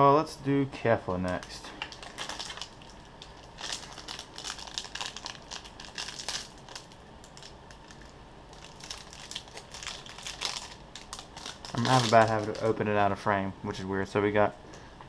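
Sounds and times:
card pack wrapper crinkling: 1.2 - 12.8.

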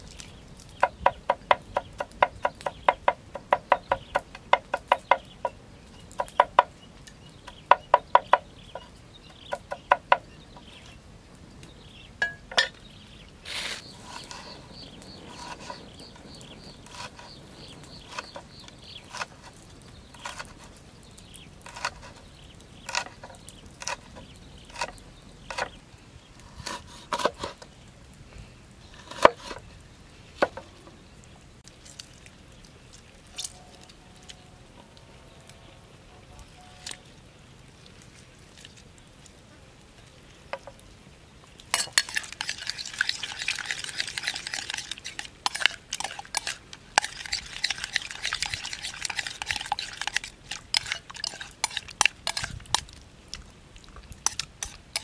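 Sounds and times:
cleaver chopping on wooden board: 0.8 - 5.3
cleaver cutting through lime: 15.2 - 19.6, 20.2 - 20.8, 21.6 - 22.2, 22.8 - 25.8, 41.8 - 52.9, 54.2 - 55.0.

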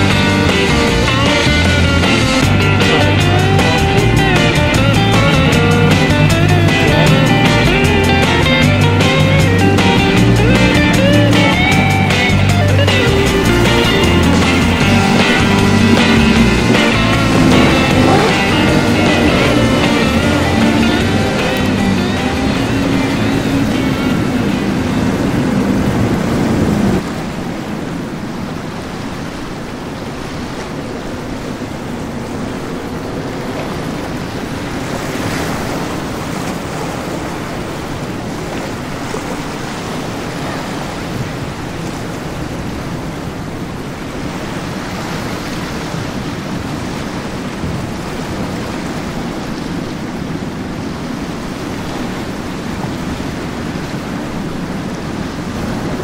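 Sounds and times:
surf: 0.0 - 56.0
wind: 0.0 - 56.0
wind buffeting microphone: 0.0 - 56.0
low hum: 0.2 - 27.0.

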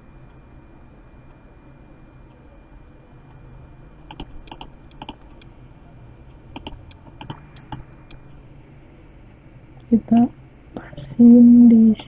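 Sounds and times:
mouse and keyboard clicks: 4.1 - 5.5, 6.6 - 8.2.

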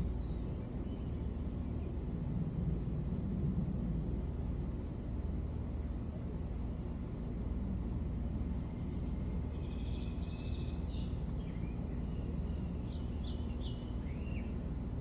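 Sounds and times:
songbird chirping and trilling: 0.0 - 2.0, 8.6 - 14.7
low background rumble: 0.0 - 15.0.

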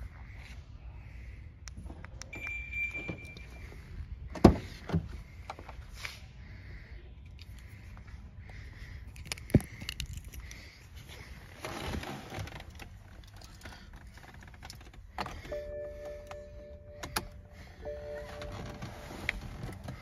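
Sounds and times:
rustling with small clicks: 11.6 - 15.6
steady electronic tone: 15.5 - 19.5.

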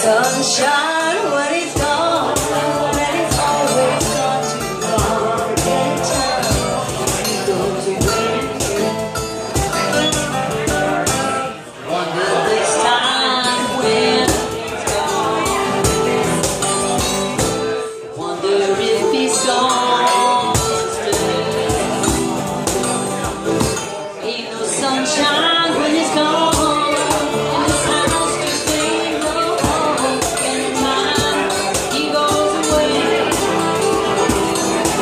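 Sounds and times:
woman singing: 0.0 - 9.2, 9.8 - 16.7, 17.8 - 22.5, 24.2 - 35.0
strummed acoustic guitars: 0.0 - 35.0
jingling hand percussion: 1.8 - 11.5, 13.5 - 17.8, 19.4 - 24.0, 26.5 - 35.0.

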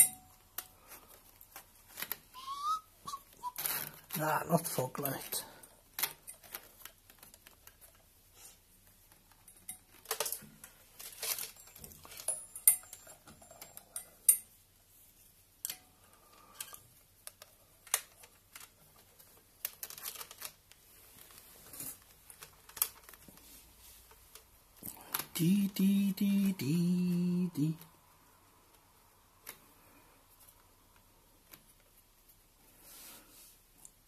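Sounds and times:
hands handling wires and connectors: 0.0 - 2.5, 5.0 - 14.8, 15.5 - 25.6.

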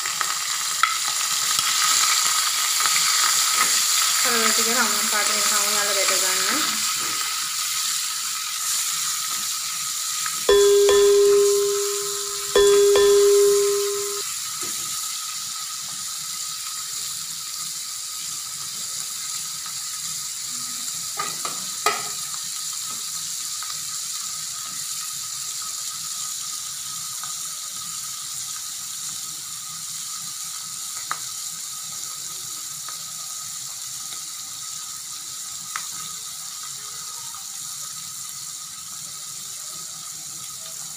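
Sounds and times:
fish frying in oil: 0.0 - 40.9
loud ringing tones: 10.5 - 14.2.

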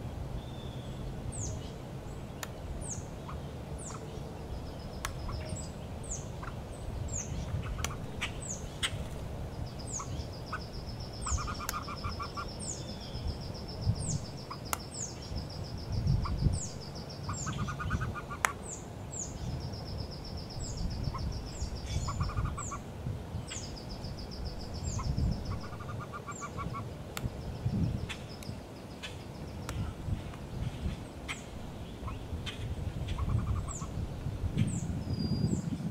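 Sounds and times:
constant low rumble: 0.0 - 35.9
ducklings peeping: 5.0 - 9.0, 9.8 - 13.3, 15.9 - 19.4, 20.6 - 22.8, 24.8 - 26.9, 31.3 - 34.0.

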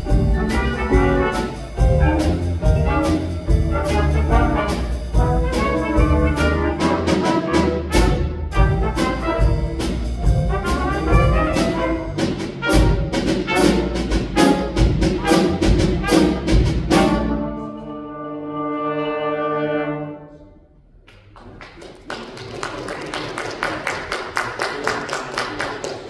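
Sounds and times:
jazz combo playing: 0.0 - 20.3.

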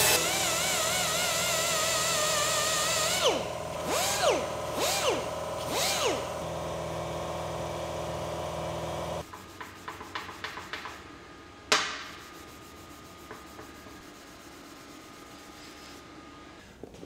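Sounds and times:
power sander running: 0.0 - 9.2.

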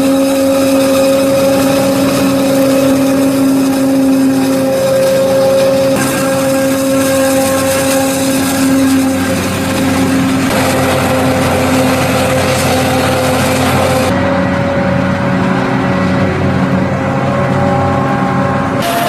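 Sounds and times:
forage harvester chopping: 0.0 - 14.1
tractor engine running: 0.0 - 19.0.

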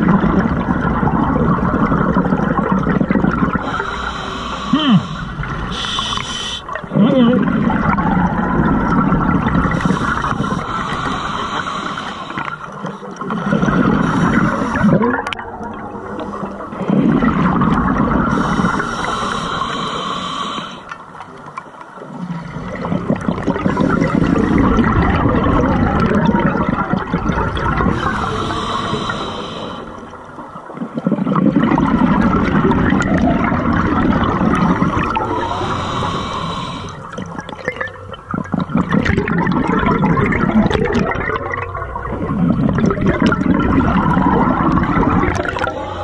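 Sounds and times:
gurgling exhaled bubbles: 0.0 - 46.0
regulator air hiss: 3.6 - 6.7, 9.8 - 12.6, 18.3 - 20.9, 27.9 - 30.0, 35.4 - 37.1.

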